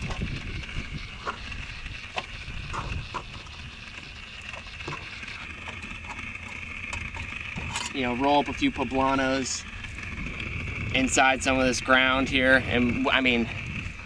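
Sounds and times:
high-pitched drone: 0:00.0 - 0:14.0
low rumble: 0:00.0 - 0:14.0.

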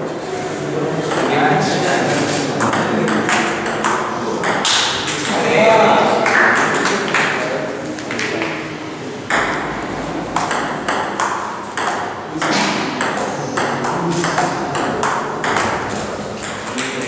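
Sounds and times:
table tennis ball clicking: 0:02.6 - 0:05.4, 0:10.4 - 0:17.0.

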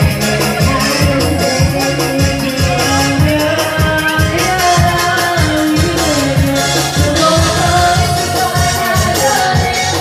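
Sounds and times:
dance music over sound system: 0:00.0 - 0:10.0.

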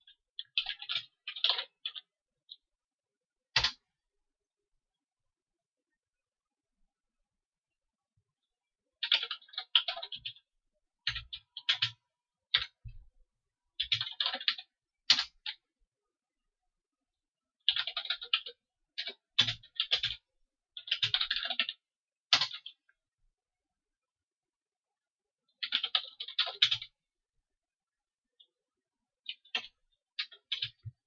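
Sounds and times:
typing on a computer keyboard: 0:00.0 - 0:02.6, 0:03.5 - 0:03.9, 0:09.0 - 0:13.0, 0:13.8 - 0:15.6, 0:17.6 - 0:22.9, 0:25.5 - 0:27.0, 0:29.2 - 0:31.0.

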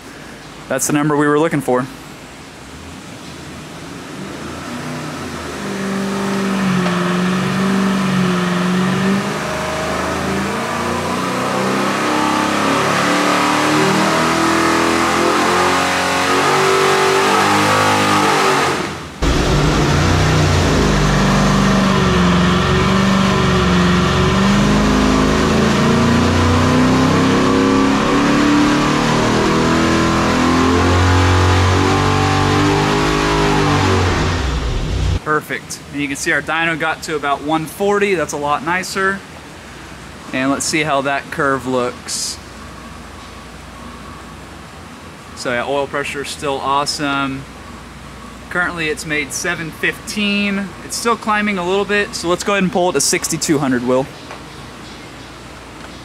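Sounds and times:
engine revving at full throttle: 0:04.1 - 0:35.2.

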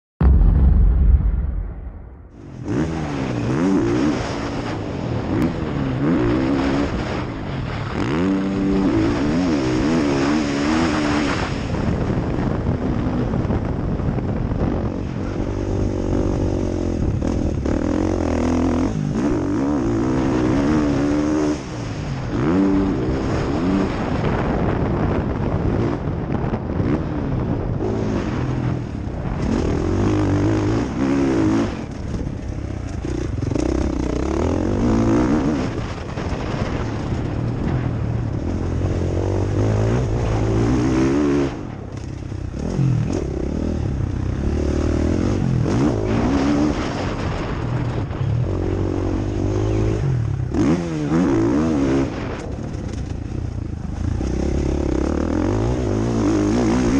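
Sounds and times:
motorbike engine revving: 0:02.3 - 0:12.2, 0:14.5 - 0:56.9.

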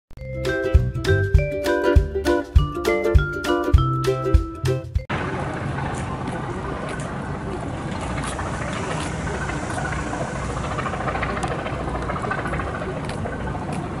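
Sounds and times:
engine idling rumble: 0:05.1 - 0:14.0.

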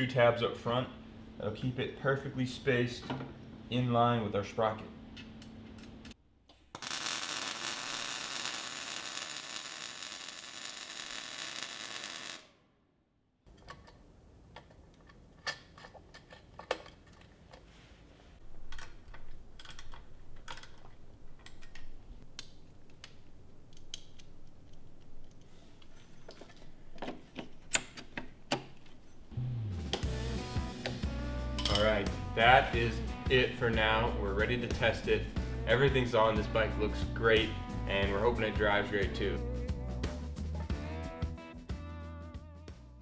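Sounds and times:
welding arc: 0:06.8 - 0:12.6
small parts clicking and tapping: 0:18.6 - 0:29.0.

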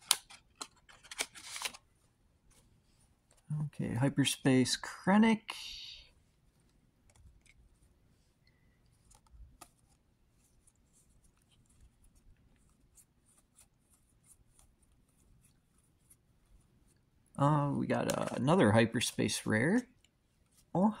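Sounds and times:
trading cards clicking and rustling: 0:00.0 - 0:01.9, 0:08.8 - 0:13.6, 0:17.9 - 0:18.9.

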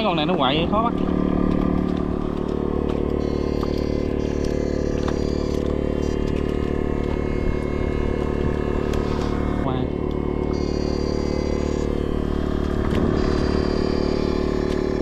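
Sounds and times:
steady mechanical drone: 0:00.0 - 0:15.0.

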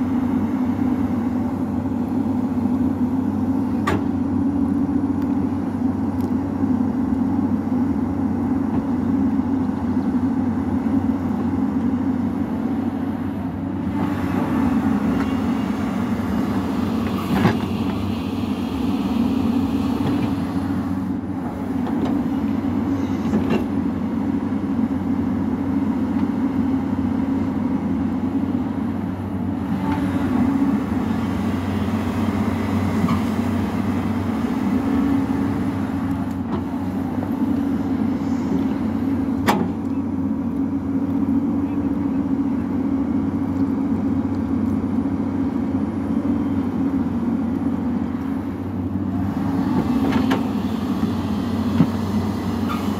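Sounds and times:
excavator diesel engine running: 0:00.0 - 0:52.9.

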